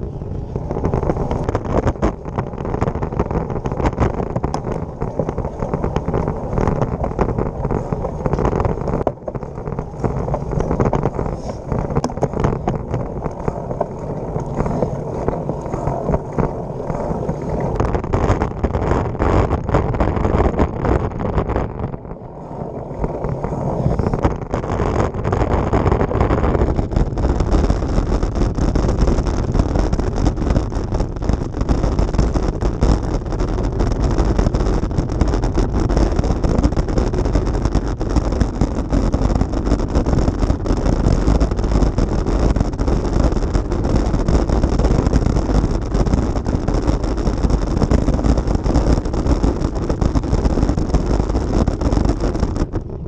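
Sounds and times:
bike rattling over cobblestones: 0.0s - 20.8s
wind on microphone: 0.0s - 53.0s.

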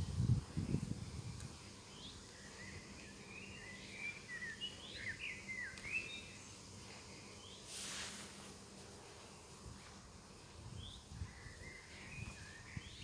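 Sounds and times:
low outdoor hiss: 0.0s - 13.0s
small songbird chirping: 0.2s - 7.7s, 9.3s - 13.0s.

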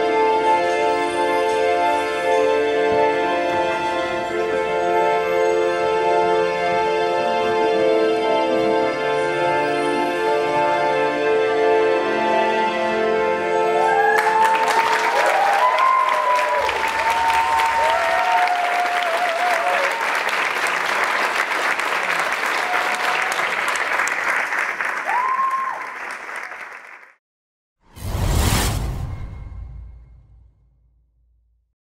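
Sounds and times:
music: 0.0s - 18.9s
audience applauding and cheering: 13.7s - 27.2s
whoops and whistles: 13.8s - 17.6s, 25.1s - 25.8s
short whoosh: 27.9s - 31.0s.

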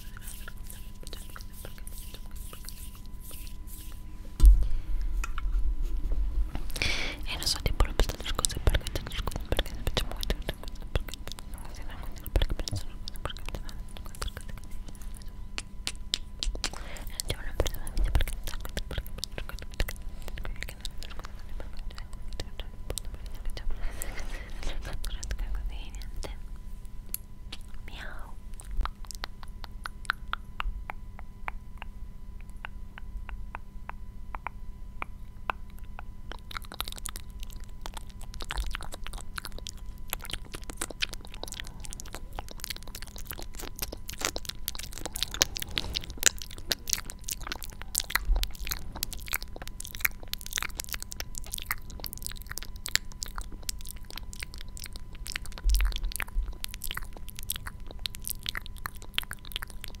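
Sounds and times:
steady electrical hum: 0.0s - 60.0s
soft low thumps: 4.4s - 6.6s
crisp clicking and crackling: 7.4s - 23.6s, 35.5s - 60.0s.

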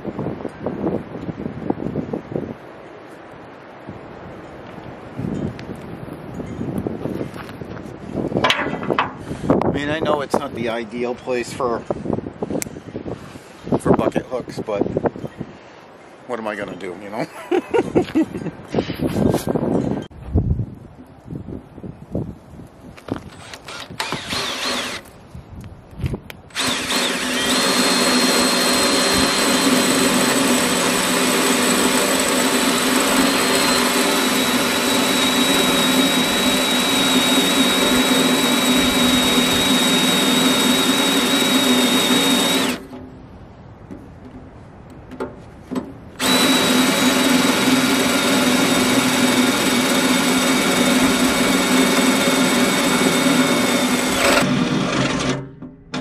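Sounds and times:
drill boring through steel: 23.3s - 25.1s, 26.5s - 42.9s, 46.2s - 55.4s.

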